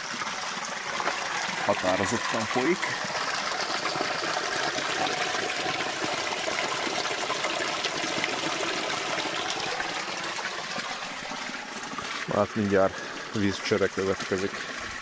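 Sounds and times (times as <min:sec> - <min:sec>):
spring water flowing: 0:00.0 - 0:15.0.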